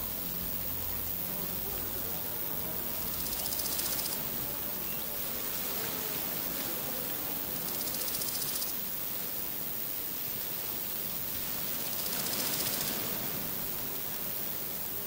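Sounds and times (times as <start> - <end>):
high rapid buzzing trill: 0.0 - 6.4
steady outdoor hiss: 0.0 - 15.0.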